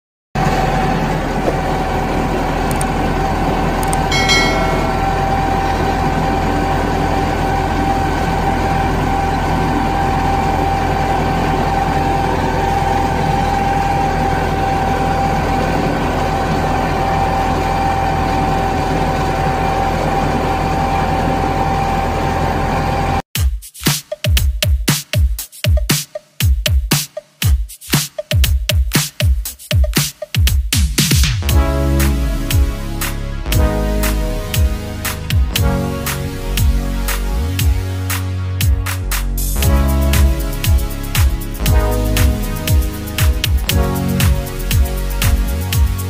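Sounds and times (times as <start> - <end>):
tractor diesel engine running: 0.4 - 23.2
steady whine: 1.1 - 6.6.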